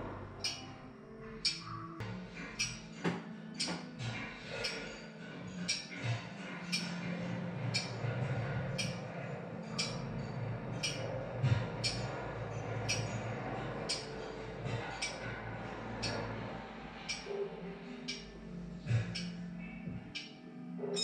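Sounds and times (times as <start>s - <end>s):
low hum: 0.0s - 20.7s
steady ticking: 0.4s - 0.7s, 7.6s - 17.3s, 18.0s - 20.4s.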